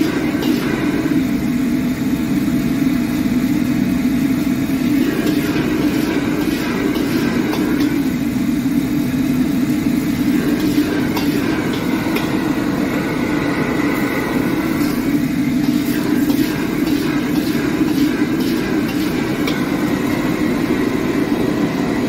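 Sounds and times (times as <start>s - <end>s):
metal ladle scraping a wok: 0.0s - 1.2s, 4.9s - 8.1s, 10.2s - 21.5s
gas burner roaring: 0.0s - 22.0s.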